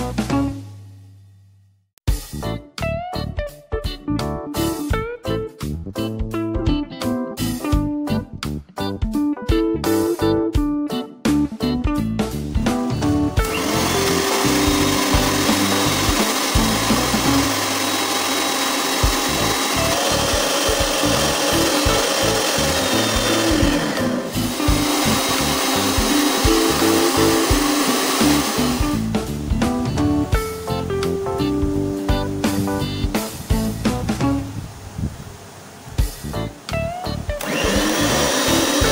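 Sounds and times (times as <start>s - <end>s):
background music: 0.0s - 1.3s, 2.1s - 34.6s, 36.0s - 38.9s
stand mixer whipping cream: 13.4s - 29.1s, 37.4s - 38.9s.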